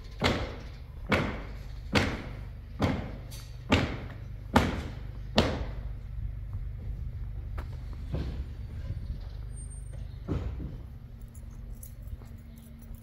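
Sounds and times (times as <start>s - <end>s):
steady low hum: 0.0s - 13.0s
deep thuds: 0.2s - 9.0s, 10.2s - 11.0s.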